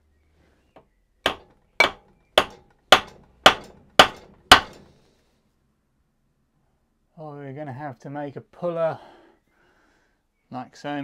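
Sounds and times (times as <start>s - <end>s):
hammer striking metal: 1.3s - 4.8s.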